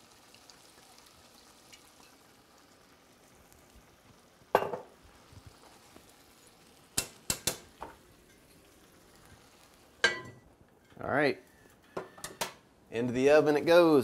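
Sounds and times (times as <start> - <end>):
faint sizzle: 0.0 - 14.0
metal tongs clinking on pan: 7.0 - 8.6, 10.0 - 11.0.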